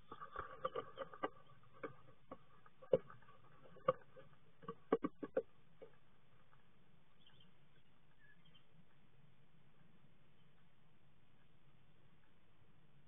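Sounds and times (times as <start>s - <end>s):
bird tapping inside wooden nest box: 0.0s - 6.0s.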